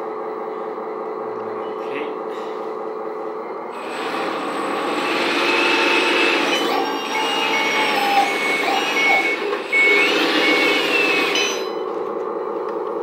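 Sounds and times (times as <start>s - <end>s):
reversing alarm beeping: 5.3s - 11.9s.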